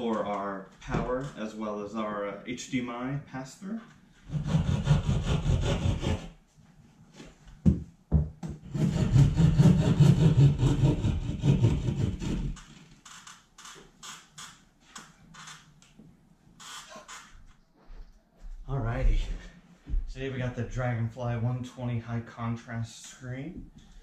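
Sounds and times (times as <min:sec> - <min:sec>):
hand saw cutting drywall: 0:04.3 - 0:06.4, 0:08.6 - 0:12.8.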